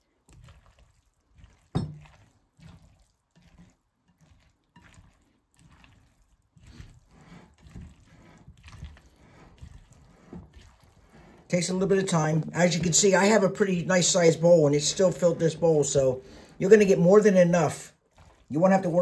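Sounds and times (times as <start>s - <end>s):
pasta salad squelching: 0.0s - 19.0s
spatula knocking glass bowl: 1.7s - 2.2s.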